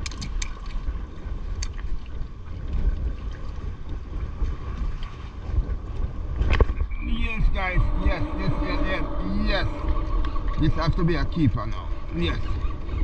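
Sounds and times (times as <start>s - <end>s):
fishing gear clicks: 0.0s - 0.7s
water lapping against kayak hull: 0.0s - 13.0s
wind rumbling on microphone: 0.0s - 13.0s.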